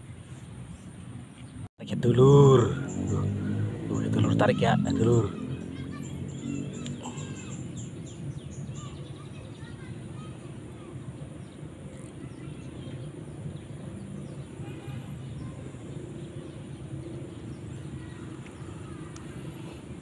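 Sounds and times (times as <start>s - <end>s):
low engine drone: 11.6s - 20.0s.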